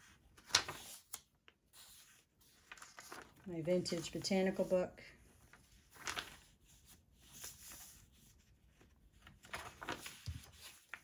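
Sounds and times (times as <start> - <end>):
paper pages turning: 0.0 - 4.6, 5.3 - 11.0.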